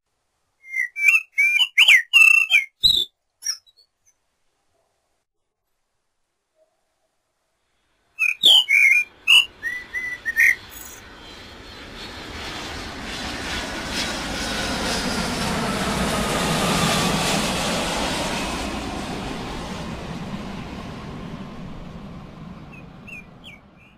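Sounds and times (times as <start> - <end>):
blackbird calling: 0.6 - 3.9, 8.2 - 11.0, 22.7 - 23.9
airplane passing overhead: 7.7 - 23.9.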